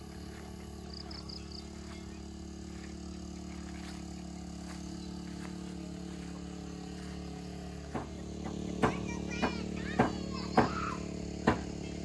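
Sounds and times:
low hum of held tones: 0.0 - 12.0
sharp knocks: 7.9 - 8.2, 11.4 - 11.7.

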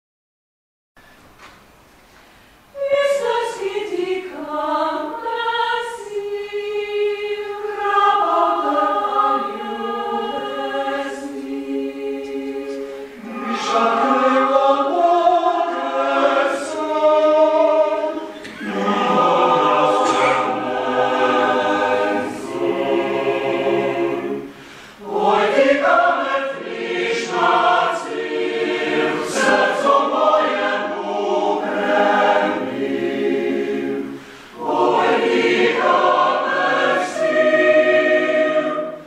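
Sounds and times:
mixed choir singing chords: 2.7 - 39.0.

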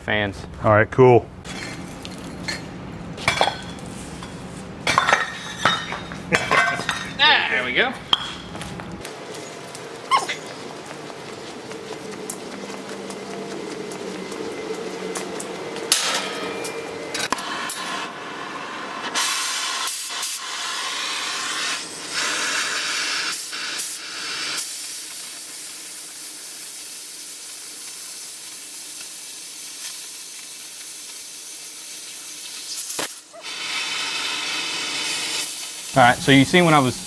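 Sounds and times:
cutting torch hissing: 9.0 - 37.0.

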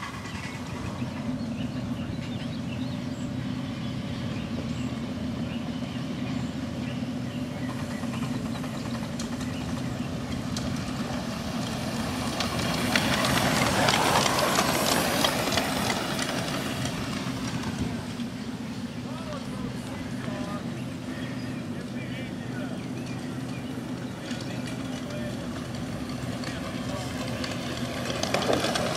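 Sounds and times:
steam locomotive hissing: 3.3 - 28.9
quick clicks of wheels: 7.6 - 18.4, 23.0 - 28.9.

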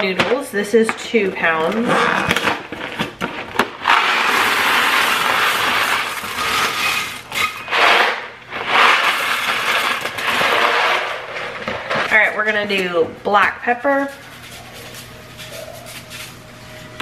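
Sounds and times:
dry pasta pouring rattle: 3.8 - 11.3.

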